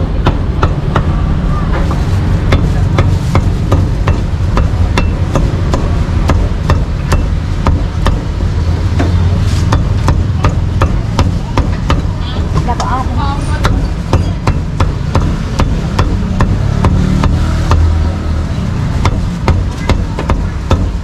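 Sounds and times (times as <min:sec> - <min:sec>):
cleaver chopping meat: 0:02.5 - 0:08.3, 0:08.9 - 0:12.1, 0:13.6 - 0:18.3, 0:18.9 - 0:21.0.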